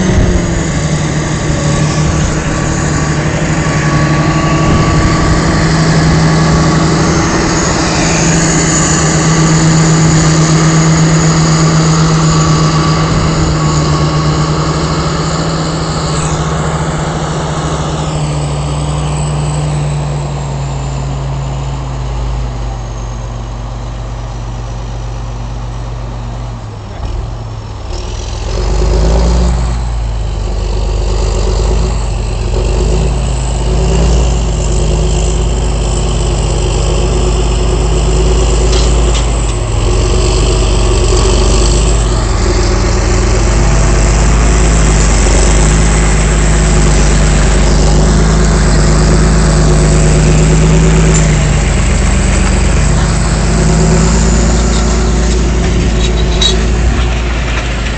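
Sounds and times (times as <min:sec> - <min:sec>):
tractor diesel engine running: 0:00.0 - 0:57.9.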